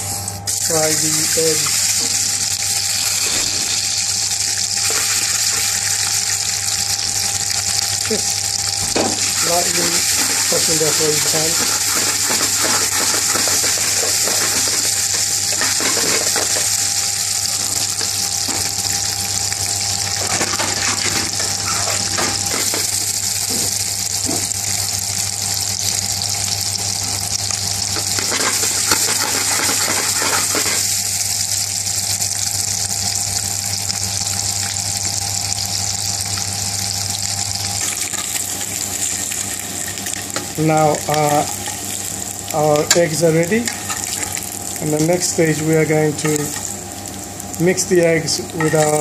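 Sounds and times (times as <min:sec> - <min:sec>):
steady low hum: 0:00.0 - 0:49.0
eggs sizzling in oil: 0:00.5 - 0:49.0
eggs clattering in pan: 0:08.9 - 0:18.8, 0:20.2 - 0:23.7, 0:27.9 - 0:31.0.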